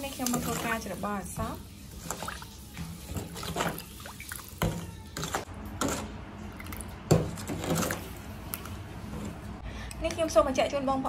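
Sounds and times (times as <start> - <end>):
metal spoon stirring in steel bowl: 0.0 - 1.0, 1.6 - 6.2, 7.1 - 9.4.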